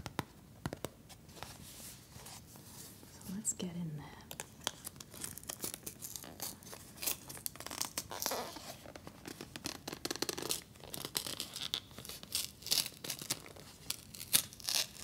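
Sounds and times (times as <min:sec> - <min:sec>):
cardboard packaging tearing: 0:04.7 - 0:15.0.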